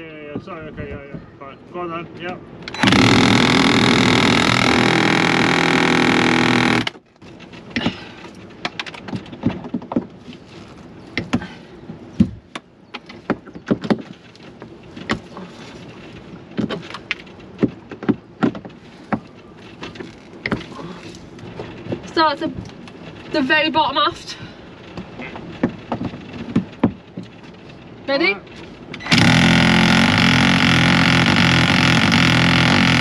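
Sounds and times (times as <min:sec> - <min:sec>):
power tool running: 0:02.7 - 0:07.0, 0:29.0 - 0:33.0
sharp knocks and taps: 0:24.9 - 0:27.4.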